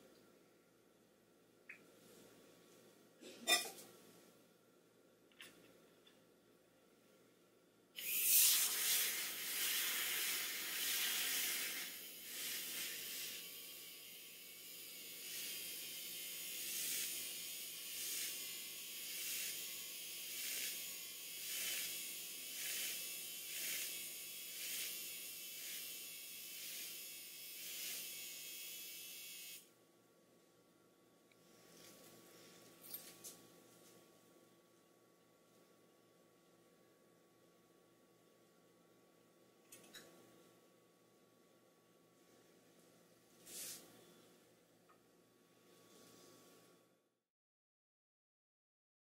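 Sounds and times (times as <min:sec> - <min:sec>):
milk frother buzzing: 0:08.0 - 0:29.7.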